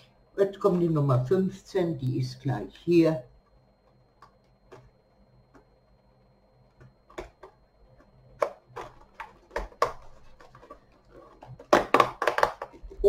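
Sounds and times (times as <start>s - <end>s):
cardboard packaging clicks and taps: 6.8s - 12.9s.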